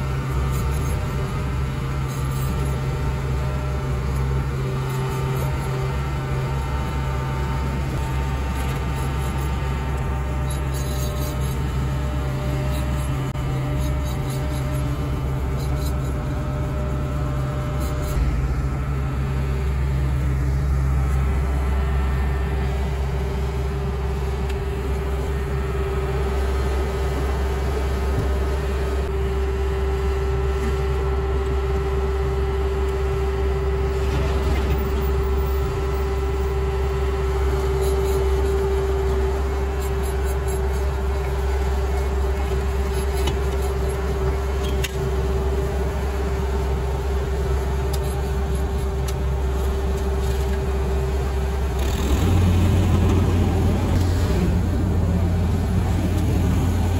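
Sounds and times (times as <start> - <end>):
paving machine engine hum: 0.0 - 56.9.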